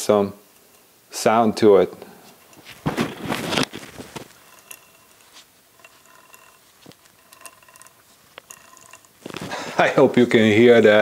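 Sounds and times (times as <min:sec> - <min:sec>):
scratchy rubbing inside motor: 0:02.6 - 0:09.7
motor ticking: 0:04.2 - 0:09.4.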